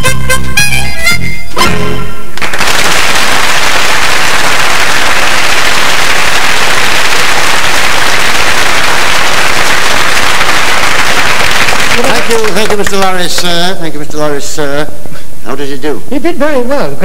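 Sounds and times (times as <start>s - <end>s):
audience applauding: 2.4s - 13.8s.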